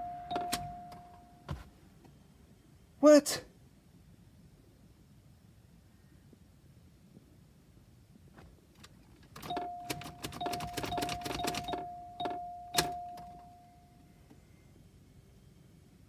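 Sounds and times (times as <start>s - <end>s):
electronic chime tone: 0.0s - 1.5s, 9.5s - 14.8s.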